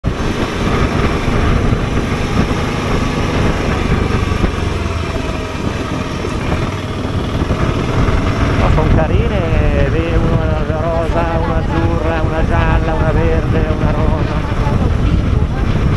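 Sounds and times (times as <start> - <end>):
motorcycle engine running: 0.0 - 15.9
wind noise on microphone: 0.0 - 15.9.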